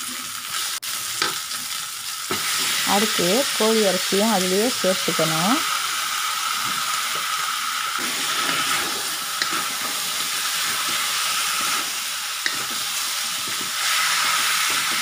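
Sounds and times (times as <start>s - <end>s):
chicken sizzling in hot oil: 0.0s - 15.0s
spatula stirring in wok: 8.0s - 15.0s.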